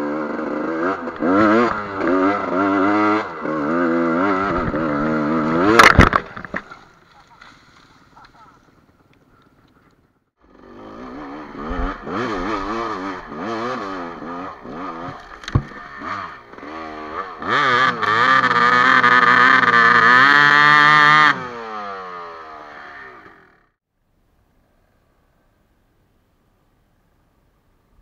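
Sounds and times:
dirt bike engine revving: 0.0 - 6.7, 10.4 - 23.8.

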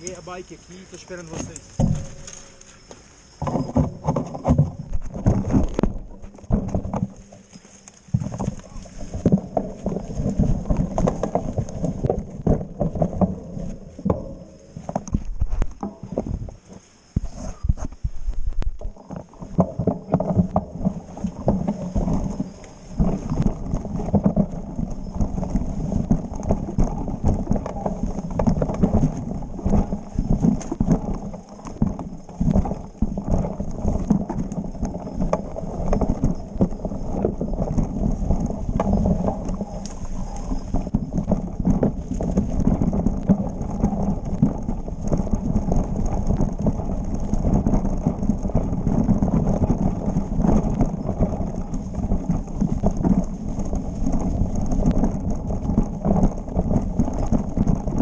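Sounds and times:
bike chain and frame rattling: 0.0 - 16.6, 18.1 - 58.0
tyres rumbling on dirt: 0.0 - 58.0.

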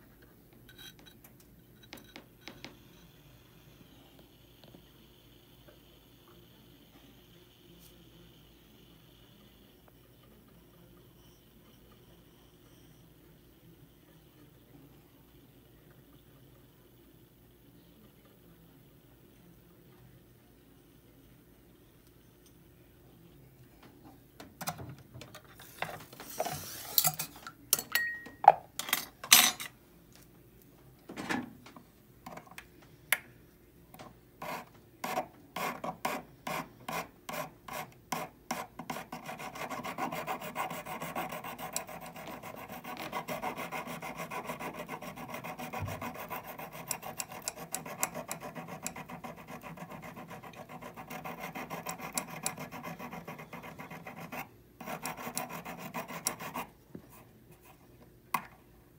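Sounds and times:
hand file rasping on metal: 34.4 - 56.7.

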